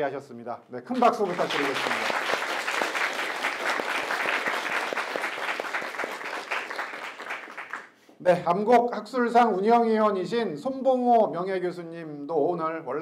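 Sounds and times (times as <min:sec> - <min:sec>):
people applauding: 0:01.0 - 0:08.0.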